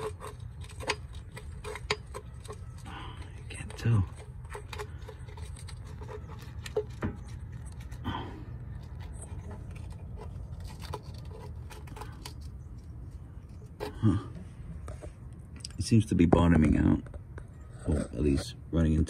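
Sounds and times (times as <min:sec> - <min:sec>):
person breathing: 0:02.8 - 0:03.4, 0:08.0 - 0:08.7, 0:13.8 - 0:14.8.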